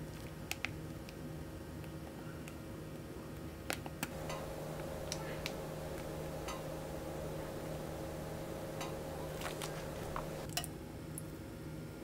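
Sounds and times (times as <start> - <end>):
steady low hum: 4.1 - 10.5
batter squishing: 9.2 - 10.3.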